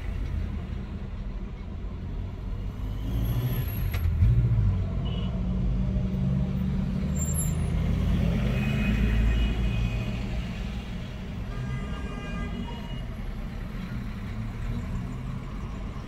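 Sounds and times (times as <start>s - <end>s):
traffic engines idling rumble: 0.0s - 2.9s, 8.6s - 16.0s.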